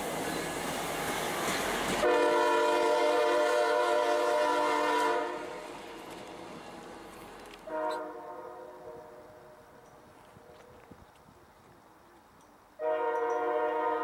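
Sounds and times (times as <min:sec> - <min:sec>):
train wheels rolling on rails: 0:00.0 - 0:08.1
locomotive air horn blast: 0:02.0 - 0:05.6, 0:07.6 - 0:09.6, 0:12.8 - 0:14.0.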